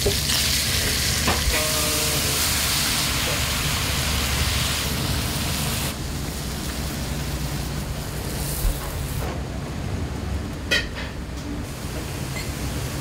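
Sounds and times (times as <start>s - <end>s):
wok sizzling: 0.0s - 9.2s
wok burner and extraction hum: 0.0s - 13.0s.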